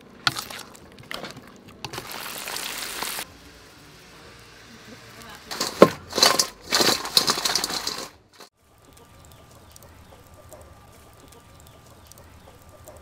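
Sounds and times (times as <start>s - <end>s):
food rattling in steel bowl: 5.4s - 8.5s.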